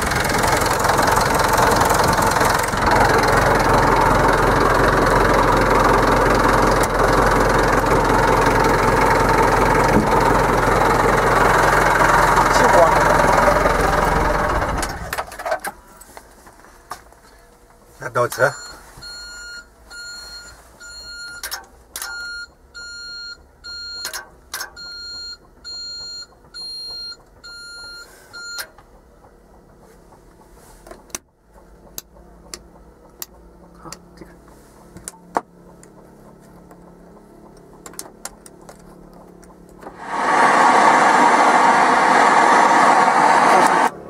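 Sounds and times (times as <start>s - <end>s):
loud steady machine running: 0.0s - 15.2s, 35.5s - 44.0s
electronic warning beeps: 18.5s - 21.5s, 22.1s - 24.1s, 24.8s - 28.7s.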